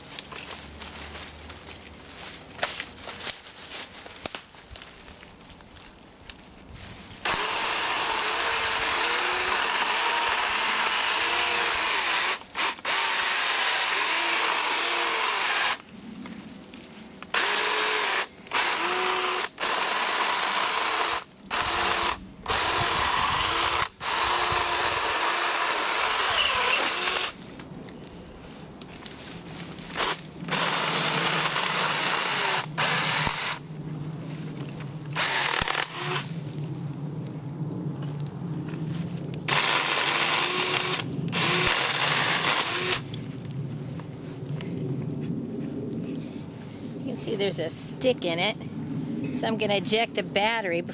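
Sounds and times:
electric chainsaw cutting branches: 0:07.2 - 0:15.8, 0:17.3 - 0:27.4, 0:29.9 - 0:33.6, 0:35.1 - 0:36.3, 0:39.5 - 0:43.1.

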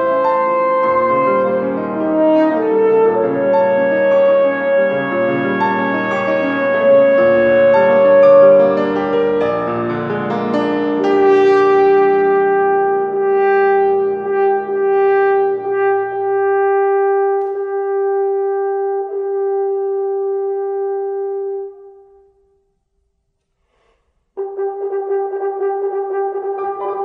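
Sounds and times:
piano chord: 0:00.0 - 0:18.8
french horn: 0:00.0 - 0:22.7, 0:24.4 - 0:27.0.

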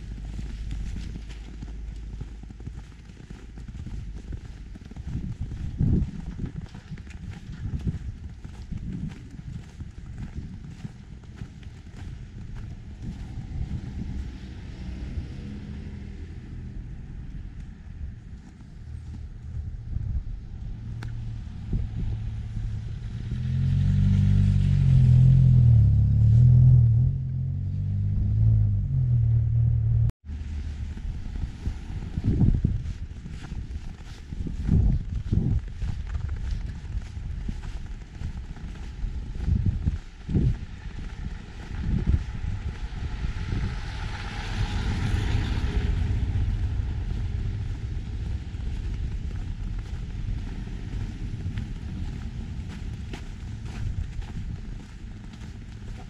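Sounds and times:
vehicle engine running: 0:00.0 - 0:56.0
wind rumble on microphone: 0:00.0 - 0:56.0
car passing: 0:10.7 - 0:33.0, 0:40.3 - 0:56.0.

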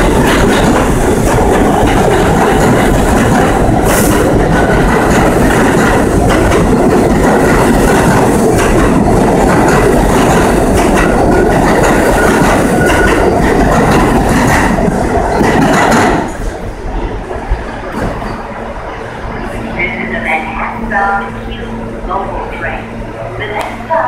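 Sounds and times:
wheels clacking over rail joints: 0:00.0 - 0:16.4
subway train rumbling past: 0:00.0 - 0:24.0.

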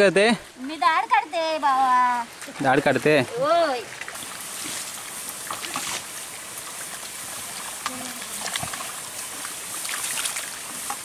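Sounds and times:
splashes and squelches of mud: 0:02.4 - 0:11.0.

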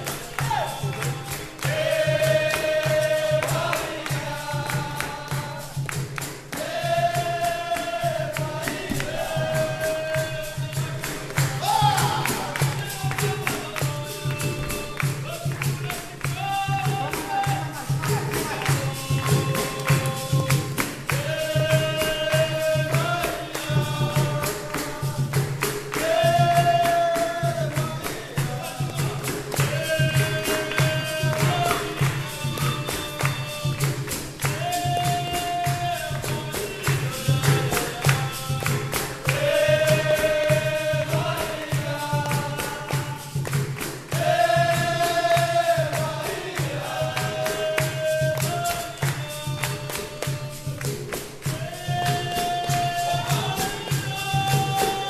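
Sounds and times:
berimbau and drum rhythm: 0:00.0 - 0:55.0
group singing in chorus: 0:00.0 - 0:55.0
people clapping in time: 0:00.0 - 0:55.0.

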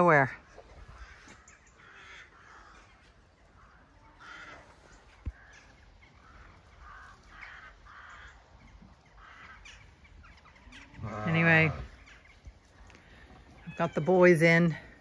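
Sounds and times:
crows cawing: 0:00.8 - 0:12.3.

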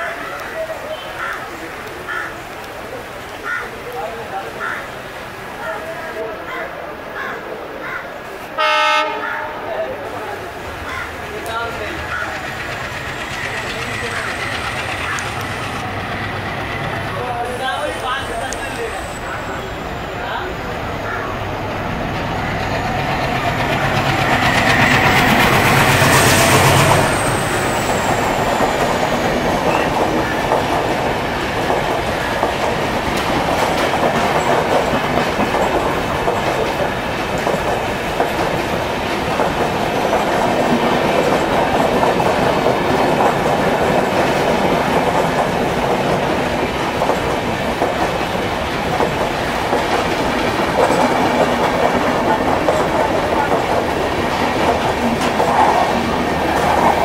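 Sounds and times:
diesel locomotive passing: 0:00.0 - 0:57.0
train wheels clattering: 0:10.8 - 0:19.7, 0:21.5 - 0:57.0.

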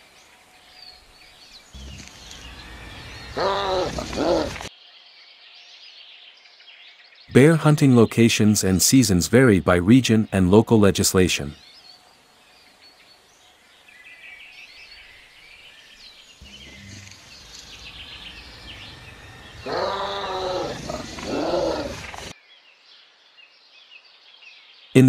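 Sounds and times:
birds chirping: 0:00.1 - 0:25.0
loud drawn-out cries: 0:03.4 - 0:04.7, 0:19.6 - 0:22.0.

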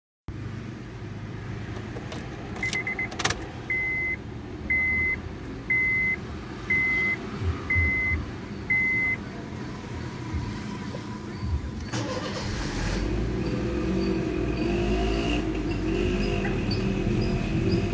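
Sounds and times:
dashboard warning chime beeping: 0:02.6 - 0:09.3
short beeps: 0:03.7 - 0:09.2.

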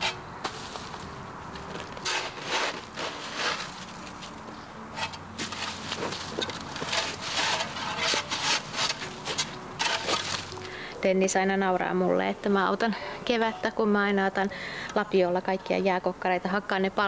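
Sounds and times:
shovel chopping and scraping ice: 0:00.0 - 0:04.4, 0:05.0 - 0:10.6.

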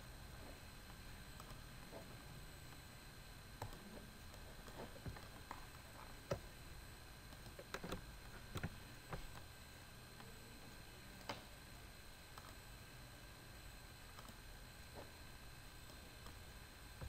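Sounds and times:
low background hum: 0:00.0 - 0:17.0
computer mouse clicks: 0:01.4 - 0:01.6, 0:07.3 - 0:09.5, 0:12.3 - 0:12.6, 0:14.1 - 0:14.4.

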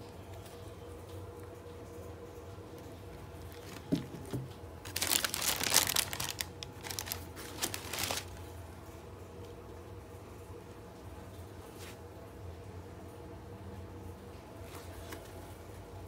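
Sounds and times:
tissue paper crinkling: 0:03.5 - 0:08.4.

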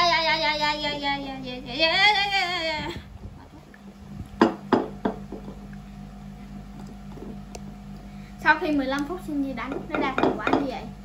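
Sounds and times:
girl singing: 0:00.0 - 0:03.0.

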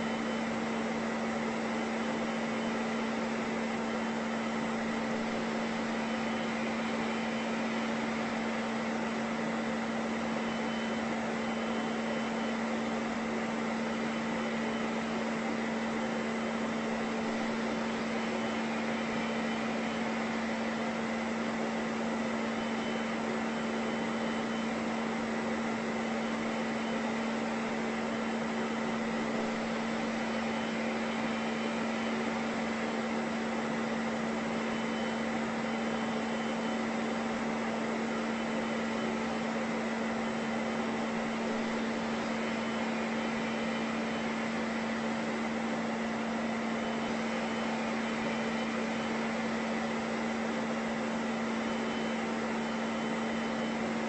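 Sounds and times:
appliance motor and fan whirring: 0:00.0 - 0:54.0.

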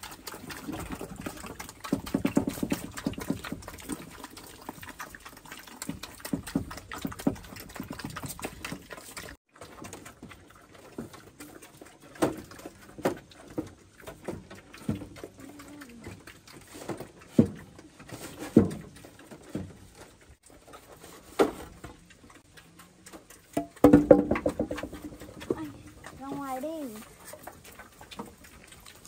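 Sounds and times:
knocks and taps: 0:23.6 - 0:25.7.

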